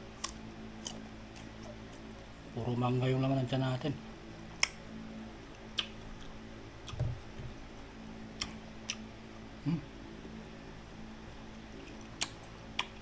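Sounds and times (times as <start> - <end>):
chewing crisp fruit: 0.1 - 2.2, 5.5 - 7.3, 8.3 - 9.1, 11.5 - 13.0.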